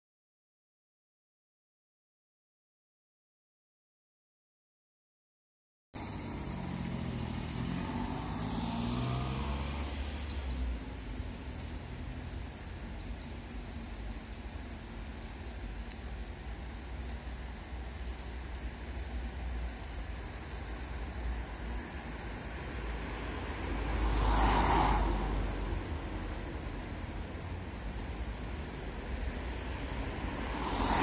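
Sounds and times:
vehicle passing: 6.0 - 13.9, 18.4 - 31.0
low traffic rumble: 6.0 - 31.0.

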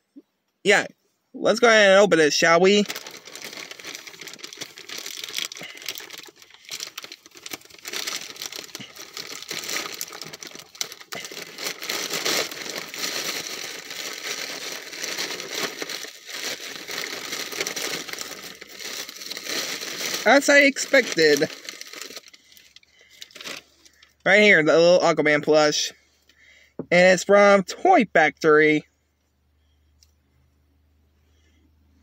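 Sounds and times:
plastic bag crinkling: 1.7 - 24.2.

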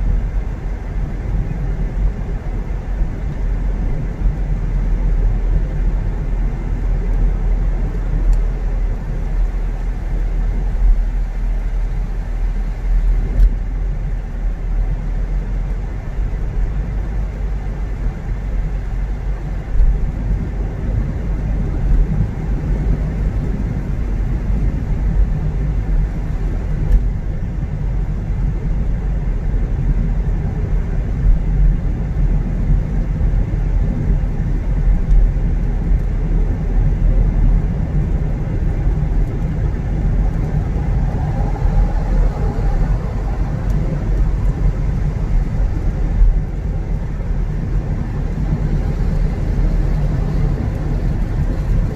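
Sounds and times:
car engine and road noise: 0.0 - 51.9.

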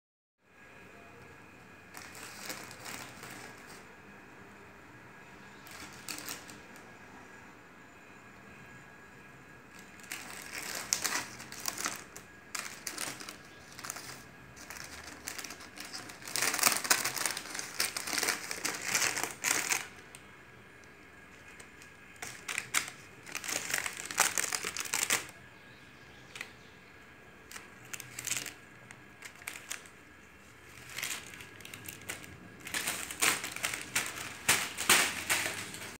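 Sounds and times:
plastic bag crinkling: 1.7 - 3.9, 5.5 - 6.8, 9.7 - 20.2, 20.8 - 25.4, 27.4 - 36.0.

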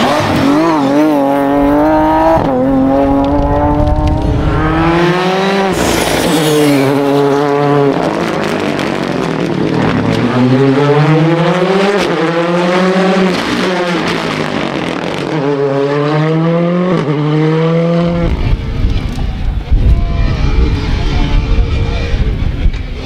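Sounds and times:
rally car engine accelerating: 0.0 - 19.2
wind buffeting microphone: 1.3 - 10.4, 18.0 - 23.0.

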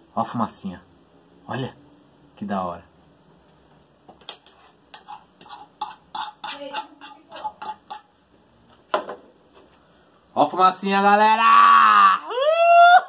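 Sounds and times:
utensil scraping a frying pan: 4.2 - 8.2.

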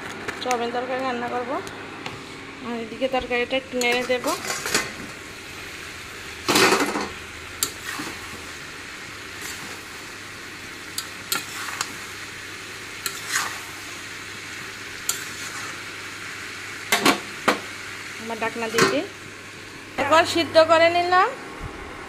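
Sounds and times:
frying sizzle: 0.0 - 22.0
spatula scraping a pan: 13.0 - 13.7, 15.1 - 15.8.

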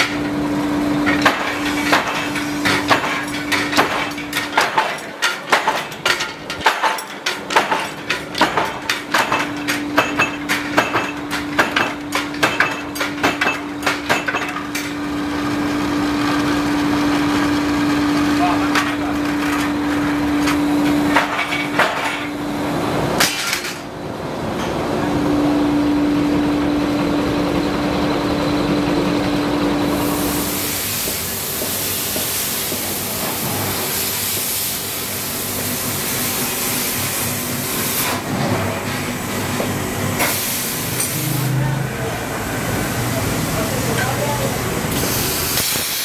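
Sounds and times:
rolling mill humming: 0.0 - 45.7
workshop noise with high hiss: 0.0 - 46.0
metal knocks and clanks: 1.1 - 15.0.

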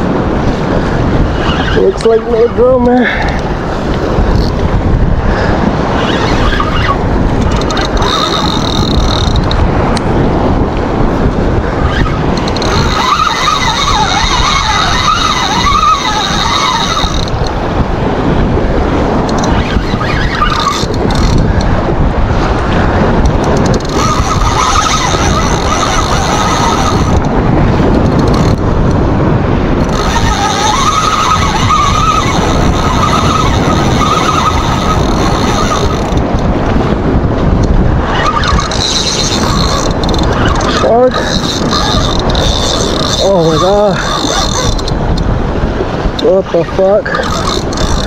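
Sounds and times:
wind buffeting microphone: 0.0 - 48.0
wavering high whine: 11.8 - 17.5, 19.3 - 21.3, 23.8 - 27.2, 29.8 - 36.2.

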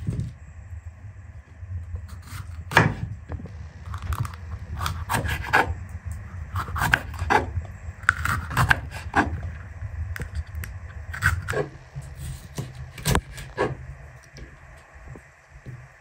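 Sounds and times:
low steady hum: 0.0 - 16.0
knife cutting on wooden board: 6.6 - 7.5.

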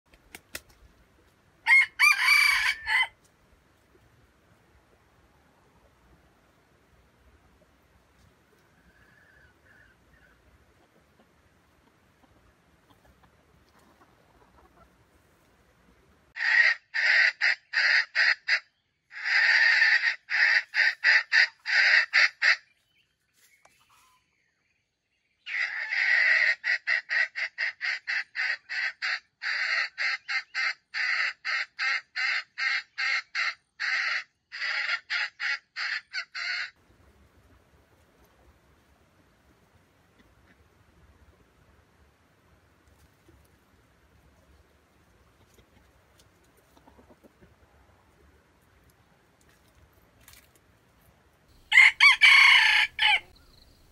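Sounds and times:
junglefowl harsh clucking: 1.7 - 3.2, 16.4 - 22.7, 25.4 - 36.8, 51.7 - 53.4.

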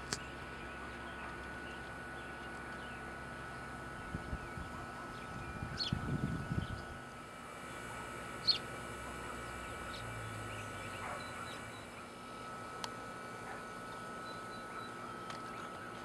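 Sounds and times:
birds chirping: 0.0 - 12.6, 13.4 - 16.0
faint steady high hum: 0.0 - 16.0
wind rumble on microphone: 4.0 - 7.0.

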